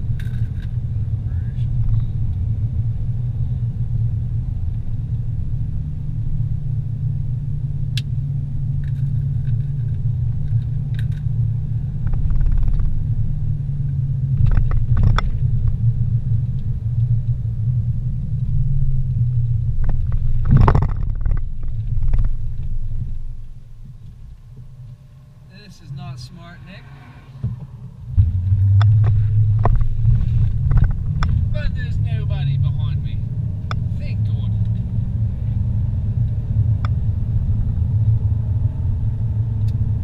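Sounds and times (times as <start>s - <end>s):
car engine and road rumble: 0.0s - 40.0s
knocks and rattles: 19.8s - 22.8s.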